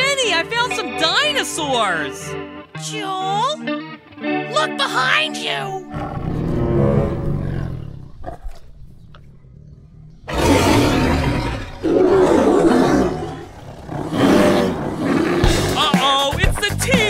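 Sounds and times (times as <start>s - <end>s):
loud dinosaur roar: 5.9s - 8.8s, 9.4s - 15.8s
low growl: 5.9s - 15.8s.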